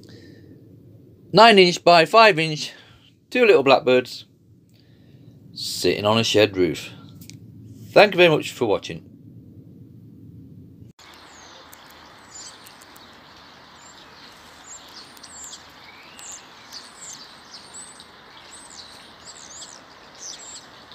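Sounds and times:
outdoor background noise: 0.0 - 20.9
small birds chirping: 11.0 - 20.9.

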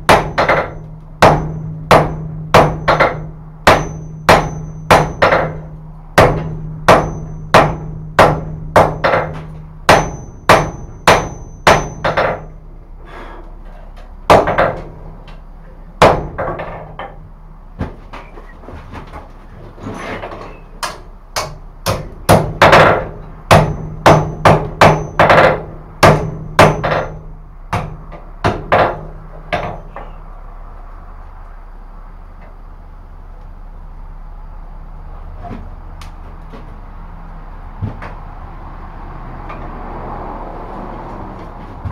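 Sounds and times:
hammer striking metal on anvil: 0.0 - 12.6, 20.8 - 30.2.

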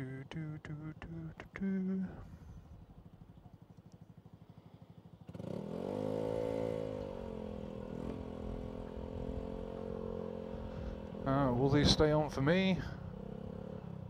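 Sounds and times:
motorcycle engine revving: 4.2 - 14.0.

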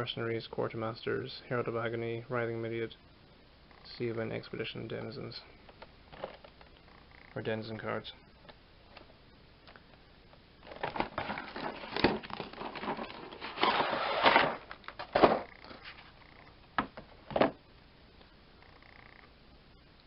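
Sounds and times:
cardboard and plastic clacks: 10.6 - 15.5
cardboard and plastic rustling: 10.6 - 16.2.

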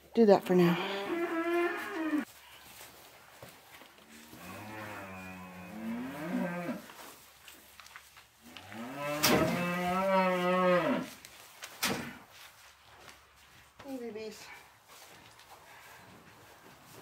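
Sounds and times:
cow mooing: 4.3 - 6.8, 8.6 - 11.1.

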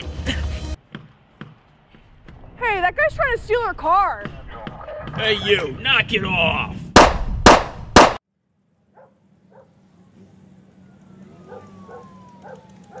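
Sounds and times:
handgun shots: 7.0 - 8.2.

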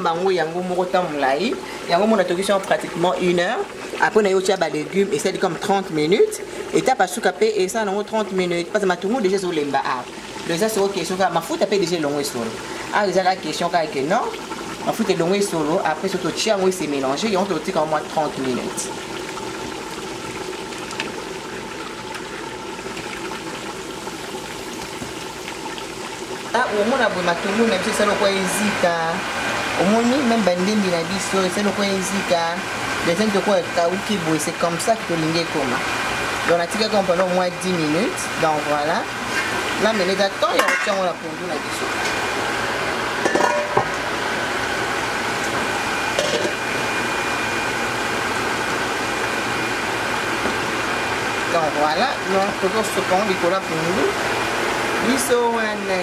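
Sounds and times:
steady kitchen hiss: 0.0 - 56.0
vegetables sizzling in a frying pan: 0.0 - 56.0
spoon clinking against pots: 40.6 - 41.0, 43.3 - 43.9.

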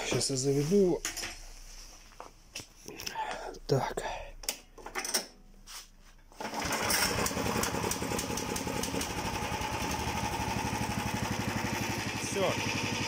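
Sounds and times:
small engine starting and running: 6.4 - 13.0.

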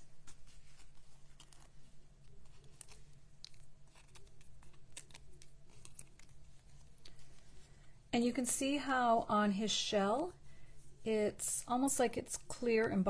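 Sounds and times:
paper rustling: 0.0 - 7.8
small clicks and crinkles: 0.0 - 8.0
low steady hum: 0.0 - 13.0.

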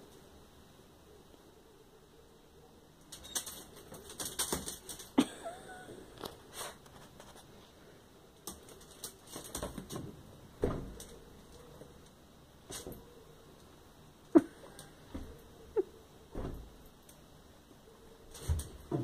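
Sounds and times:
dog claws clicking on concrete: 3.1 - 5.2, 8.4 - 10.1
thump: 10.6 - 11.0, 16.3 - 16.7.

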